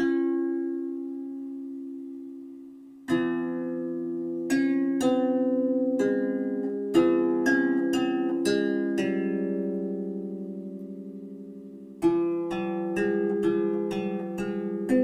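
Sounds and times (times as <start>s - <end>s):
plucked string melody: 0.0s - 15.0s.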